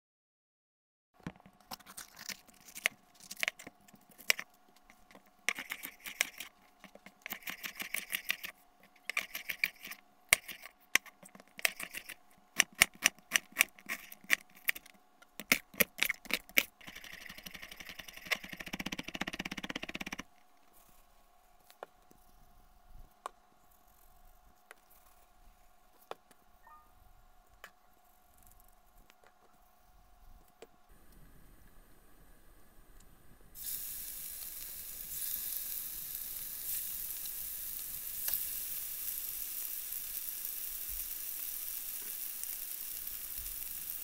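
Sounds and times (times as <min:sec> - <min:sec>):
steady hiss: 0:30.9 - 0:44.0.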